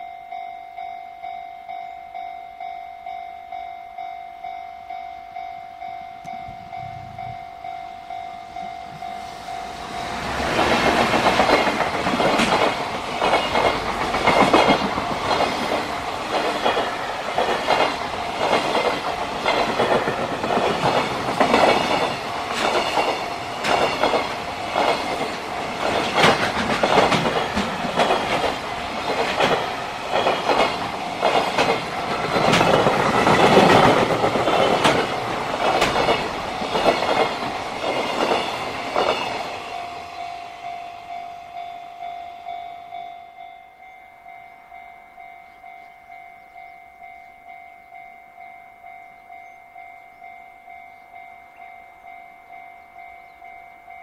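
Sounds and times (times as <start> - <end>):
train wheels clickety-clack: 8.6 - 40.2.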